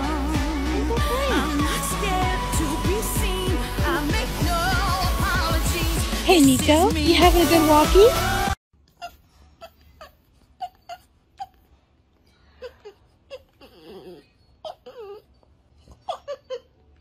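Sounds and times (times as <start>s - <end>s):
pop song: 0.0s - 8.6s
dog whining: 8.9s - 11.7s, 12.6s - 17.0s.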